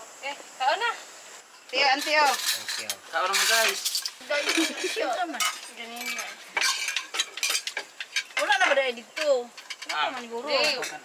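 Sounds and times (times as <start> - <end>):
people talking: 1.7 - 6.3, 8.4 - 11.0
spoons and plates clinking: 2.0 - 11.0.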